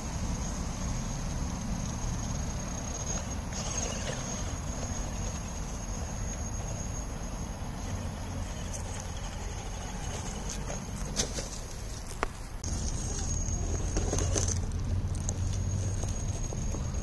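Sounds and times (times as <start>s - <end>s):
high insect trill: 0.0s - 17.0s
toy car motor: 1.9s - 7.0s, 7.9s - 11.1s, 12.7s - 17.0s.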